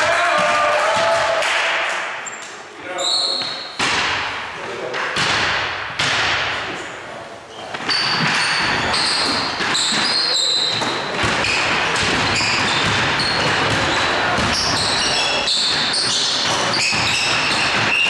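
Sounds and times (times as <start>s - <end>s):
sneaker squeaks: 2.2s - 3.8s, 7.5s - 18.0s
basketball bouncing on floor: 5.2s - 6.6s, 7.8s - 18.0s.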